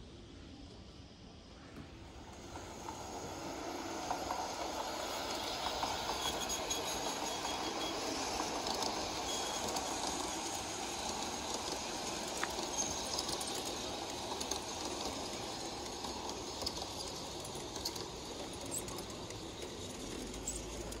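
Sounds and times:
model train wheels rumbling on rail: 0:00.0 - 0:21.0.

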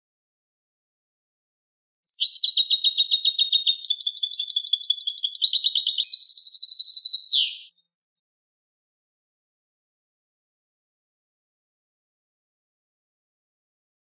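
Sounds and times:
goldfinch twittering song: 0:02.1 - 0:07.8.

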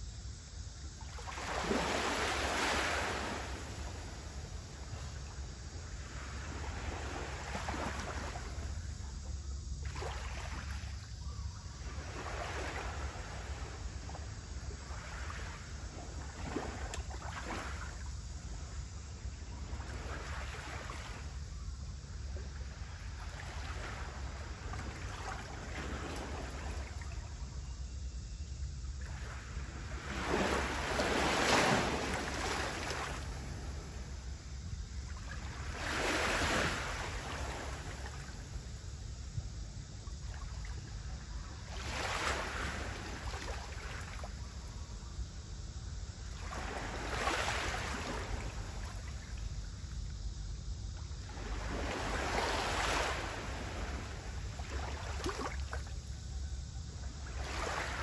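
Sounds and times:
small waves washing ashore: 0:01.0 - 0:11.2, 0:11.8 - 0:27.5, 0:29.0 - 0:39.2, 0:40.0 - 0:44.9, 0:46.0 - 0:49.9, 0:50.9 - 0:56.2, 0:57.1 - 0:58.0.

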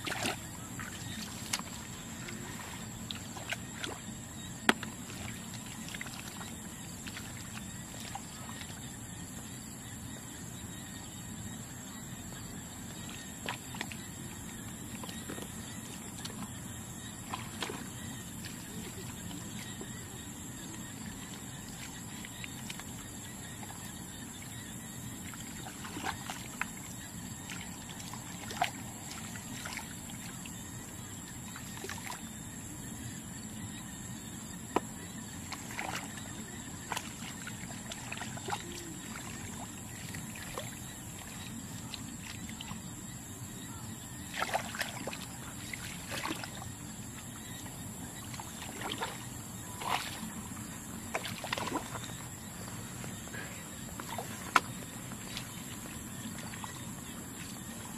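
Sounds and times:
short splashes: 0:00.0 - 0:04.0, 0:44.3 - 0:46.6, 0:48.3 - 0:50.4, 0:51.0 - 0:52.2, 0:53.3 - 0:56.8
muddy water sloshing: 0:00.0 - 0:09.6, 0:12.6 - 0:32.4, 0:33.8 - 0:57.9.

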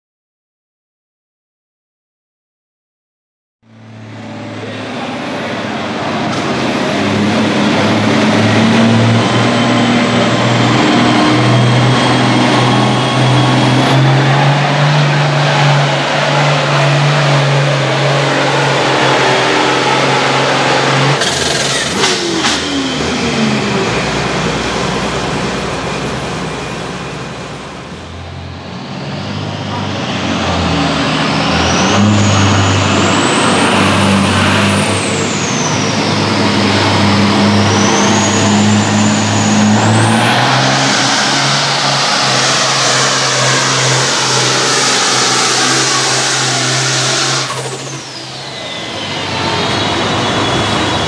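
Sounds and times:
diesel tractor engine under load: 0:03.8 - 0:51.0.

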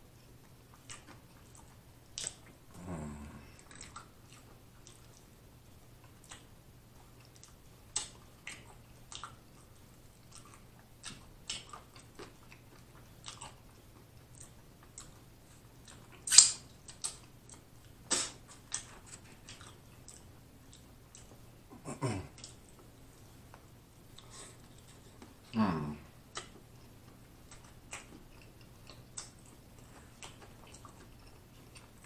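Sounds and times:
man chewing with lip smacks: 0:00.1 - 0:32.0.

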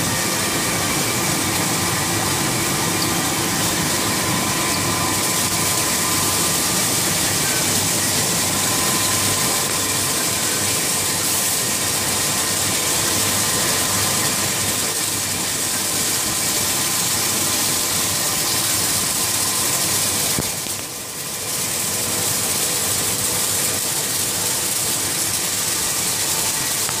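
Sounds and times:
roller whine: 0:00.0 - 0:12.3
printing press hiss and hum: 0:00.0 - 0:27.0.

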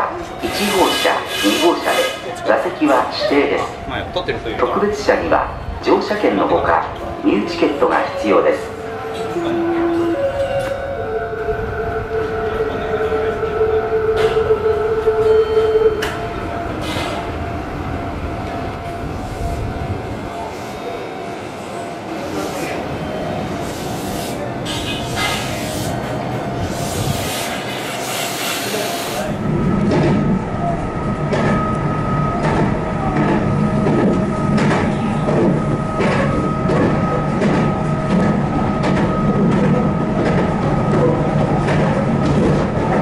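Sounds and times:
train running noise: 0:00.0 - 0:43.0
train horn: 0:00.6 - 0:02.2, 0:08.2 - 0:16.2
train wheels clicking over rail joints: 0:32.4 - 0:43.0.

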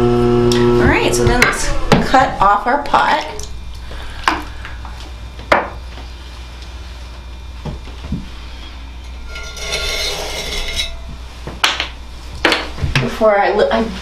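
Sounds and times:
low hum: 0:00.0 - 0:14.0
wire scraping through clay: 0:09.0 - 0:11.1.

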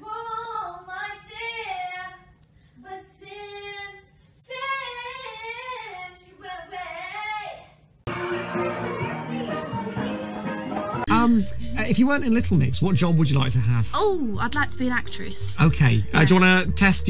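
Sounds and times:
loud music: 0:08.1 - 0:17.0
people talking: 0:11.1 - 0:17.0.

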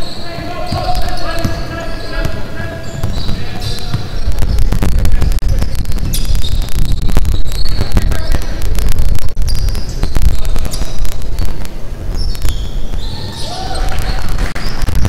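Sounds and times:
sneakers squeaking: 0:00.0 - 0:08.6, 0:09.4 - 0:15.0
ball and feet thuds: 0:00.4 - 0:08.1
steady low rumble: 0:03.8 - 0:13.1.

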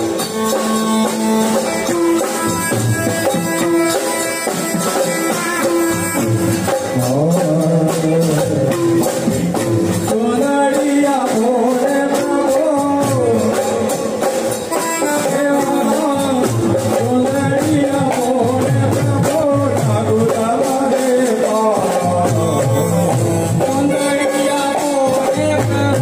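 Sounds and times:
drum kit steady quick beat: 0:00.0 - 0:26.0
person singing a melody: 0:06.7 - 0:26.0.

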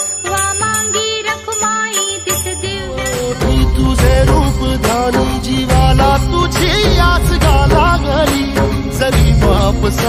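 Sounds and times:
bell-like percussion beat: 0:00.0 - 0:10.0
devotional instrumental music: 0:00.0 - 0:10.0
heavy bass: 0:03.1 - 0:10.0.

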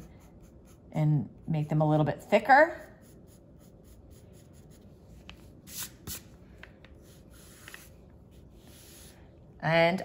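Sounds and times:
pencil scratching on paper: 0:00.0 - 0:02.0, 0:02.7 - 0:06.2, 0:07.0 - 0:09.2.

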